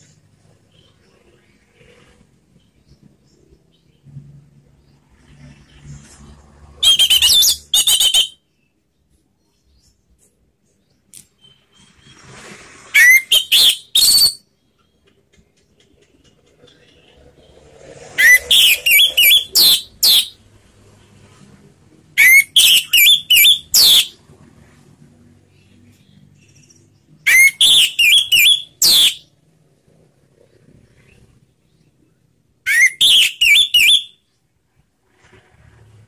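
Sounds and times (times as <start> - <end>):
thrush singing whistled notes: 6.8 - 8.8, 12.8 - 15.0, 18.0 - 20.4, 22.2 - 24.2, 27.2 - 29.3, 32.7 - 34.2.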